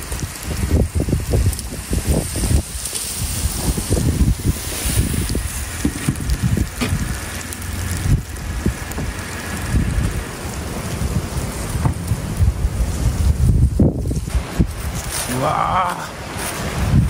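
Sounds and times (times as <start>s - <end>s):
car driving slowly: 0.0s - 17.0s
wind buffeting microphone: 0.0s - 17.0s.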